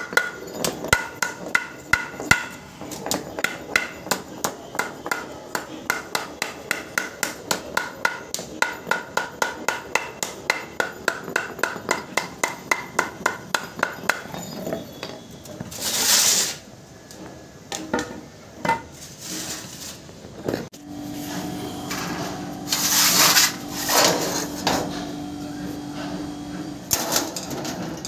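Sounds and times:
hammer tapping on metal: 0.0 - 14.4.

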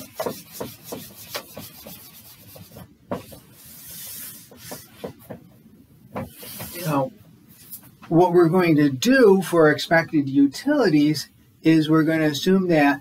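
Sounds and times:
eraser rubbing on whiteboard: 0.0 - 5.4, 6.2 - 6.9.

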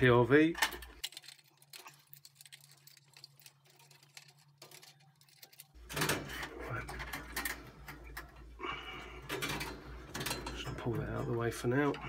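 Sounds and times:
wires and plastic connectors clicking: 0.5 - 8.5.

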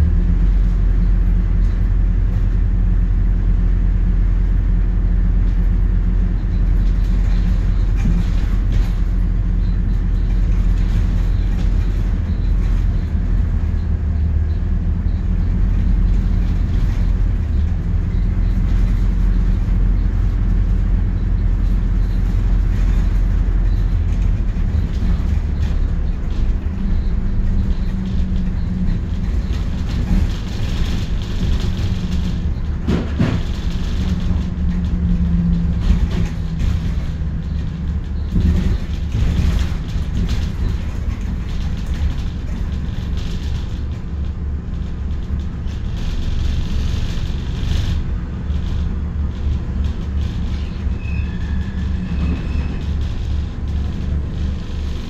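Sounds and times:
bus engine rumble: 0.0 - 55.0
knocks and rattles from bus body: 0.0 - 55.0.

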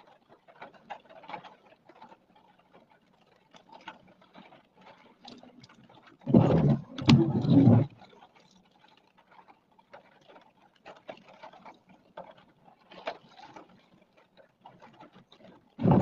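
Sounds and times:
windshield wiper sweeping: 6.3 - 7.9, 15.8 - 16.0
raindrops tapping on windshield: 15.8 - 16.0.

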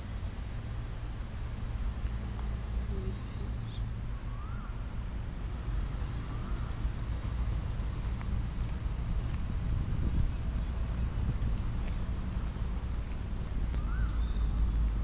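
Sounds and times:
low outdoor rumble: 0.0 - 15.0
faint bird chirps: 2.6 - 4.9, 12.6 - 15.0.

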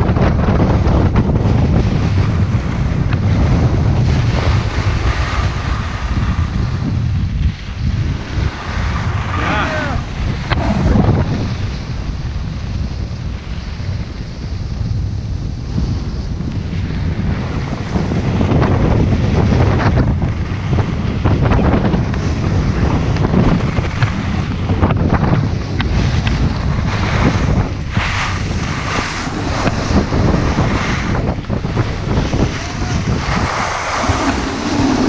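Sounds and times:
wind buffeting microphone: 0.0 - 35.0
snowboard edges scraping snow: 1.5 - 14.9, 25.4 - 35.0.

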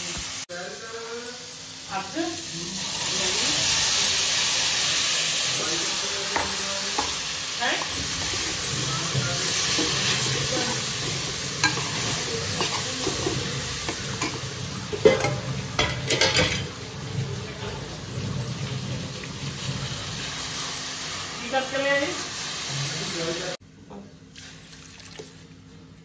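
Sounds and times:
food sizzling: 0.0 - 23.6
metal spoon scraping pan: 9.6 - 16.7.

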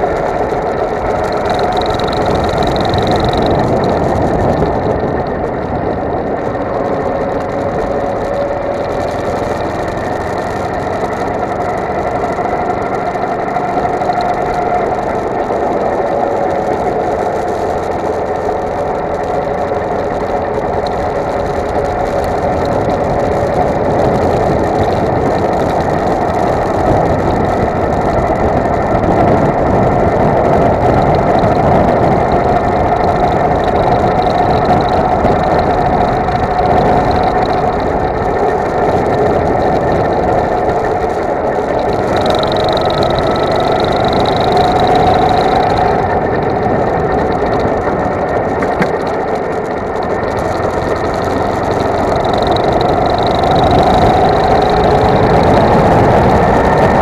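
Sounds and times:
go-kart engine running: 0.0 - 57.0.

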